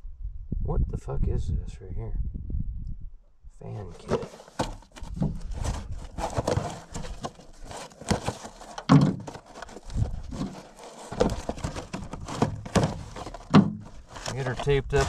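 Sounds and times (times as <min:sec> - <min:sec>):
cardboard rustling: 0:03.7 - 0:15.0.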